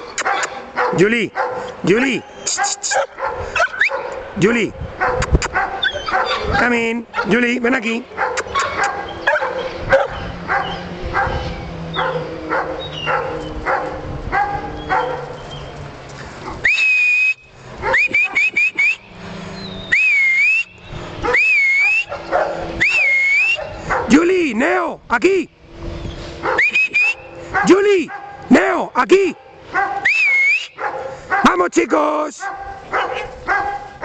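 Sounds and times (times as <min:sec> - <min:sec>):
dog barking: 0:00.2 - 0:04.3, 0:05.0 - 0:07.4, 0:08.2 - 0:15.4, 0:17.8 - 0:18.4, 0:21.2 - 0:24.2, 0:26.4 - 0:28.5, 0:29.7 - 0:30.1, 0:30.8 - 0:34.0
person whistling: 0:16.6 - 0:19.1, 0:19.9 - 0:20.8, 0:22.8 - 0:23.6, 0:26.6 - 0:27.3, 0:30.0 - 0:30.8.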